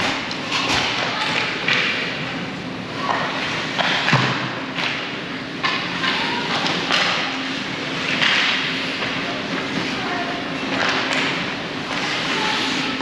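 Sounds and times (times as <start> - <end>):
hockey sticks and puck knocking: 3.0 - 7.3, 8.0 - 9.9, 10.6 - 13.0.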